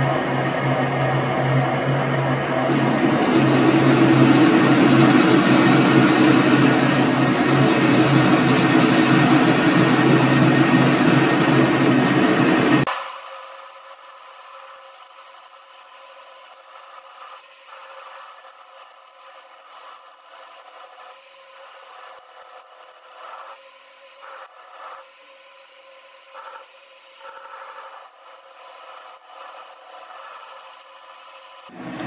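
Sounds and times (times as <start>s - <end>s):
lathe drive hum: 0.0s - 12.9s, 31.6s - 32.0s
lathe tool scraping steel: 2.7s - 12.9s.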